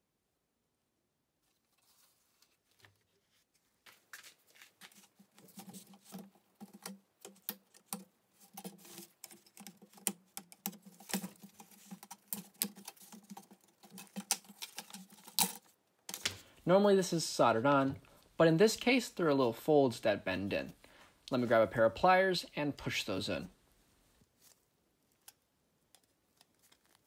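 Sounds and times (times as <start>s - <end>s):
screwdriver clicking and scraping plastic: 5.2s - 16.4s, 25.1s - 27.0s.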